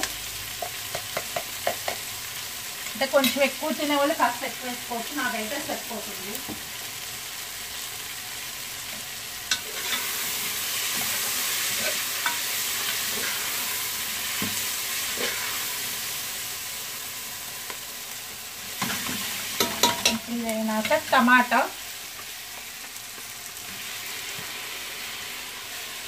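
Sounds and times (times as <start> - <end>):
vegetables sizzling in a pot: 0.0 - 26.0
steel spoon scraping a pot: 9.5 - 10.3, 10.9 - 13.7.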